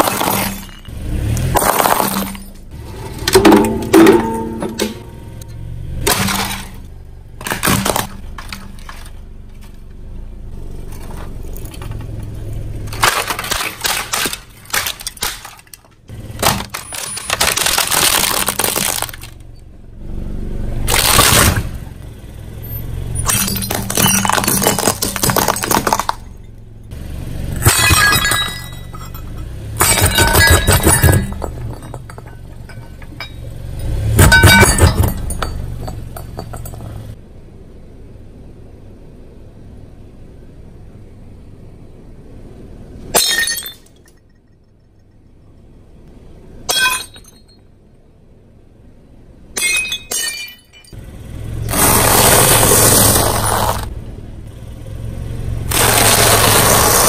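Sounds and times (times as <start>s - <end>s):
car engine hum: 0.0s - 43.8s, 47.7s - 57.0s
tyre crushing crunchy objects: 12.9s - 19.4s, 20.9s - 21.8s, 51.7s - 53.9s, 55.7s - 57.0s.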